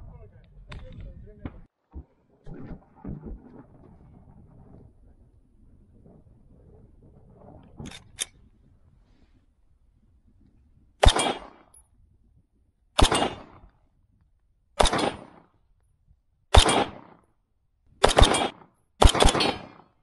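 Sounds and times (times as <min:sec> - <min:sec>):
gunshots with echo: 0:11.0 - 0:11.7, 0:13.0 - 0:13.6, 0:14.8 - 0:15.4, 0:16.5 - 0:17.2, 0:18.0 - 0:20.0.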